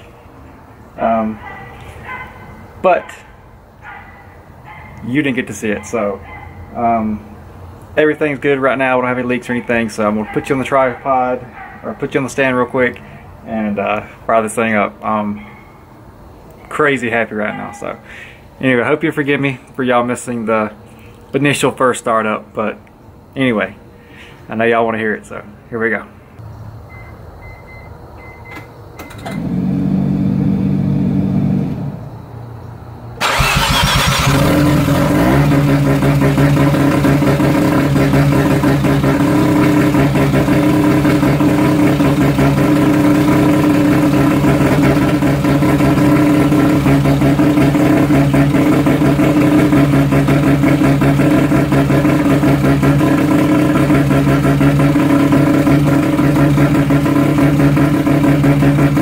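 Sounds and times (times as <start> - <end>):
starter motor cranking: 33.2 - 36.5
rotary engine firing and idling: 33.2 - 59.0.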